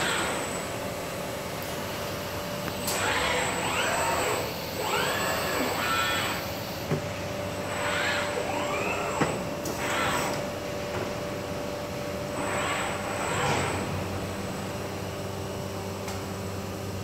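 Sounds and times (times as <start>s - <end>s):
robot arm servos whining: 2.8s - 6.6s, 7.6s - 10.4s, 12.4s - 14.0s.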